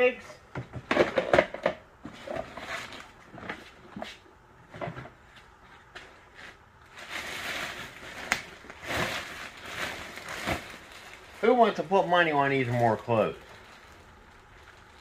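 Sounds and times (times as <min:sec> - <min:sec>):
plastic garbage bag rustling: 0:06.3 - 0:15.0.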